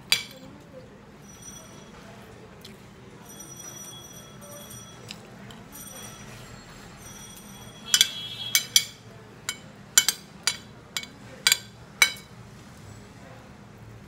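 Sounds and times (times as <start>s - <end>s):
spoon clinking on plate: 0.1s - 0.4s, 7.3s - 12.3s
spoon scraping plate: 7.9s - 12.3s.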